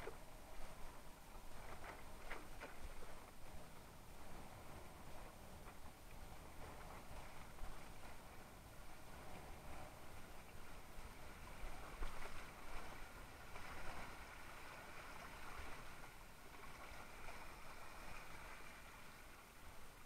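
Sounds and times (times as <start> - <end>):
wind rumble on microphone: 0.0 - 20.0.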